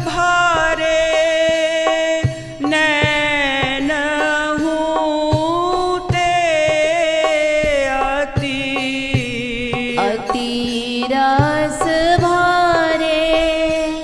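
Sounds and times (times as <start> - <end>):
percussion beat: 0.0 - 14.0
woman singing devotional song: 0.0 - 14.0.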